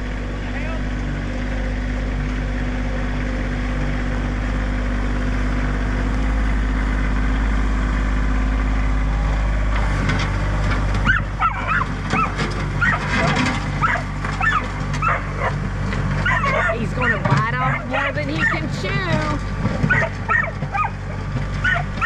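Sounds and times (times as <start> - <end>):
tractor diesel engine running: 0.0 - 22.0
dog whimpering and yipping: 11.1 - 13.0, 13.8 - 15.5, 16.2 - 16.8, 19.9 - 20.9, 21.6 - 21.8.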